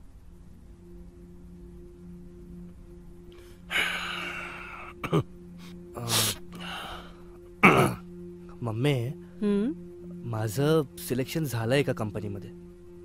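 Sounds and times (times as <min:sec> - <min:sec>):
low steady background tone: 0:00.0 - 0:13.0
breathy sigh: 0:03.4 - 0:05.0, 0:05.6 - 0:07.3.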